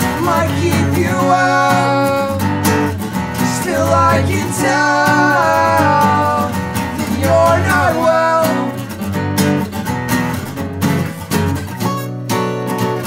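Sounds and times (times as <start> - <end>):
man singing: 0.0 - 2.6, 3.3 - 9.0
acoustic guitars strumming: 0.0 - 13.0.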